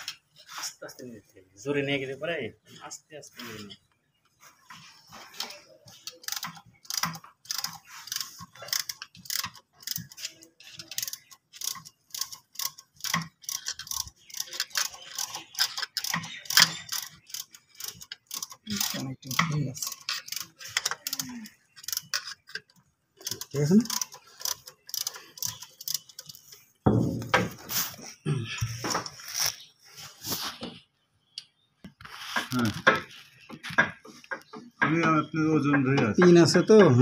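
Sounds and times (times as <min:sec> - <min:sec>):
ratcheting screwdriver clicking: 0:06.0 - 0:21.2, 0:21.8 - 0:26.5.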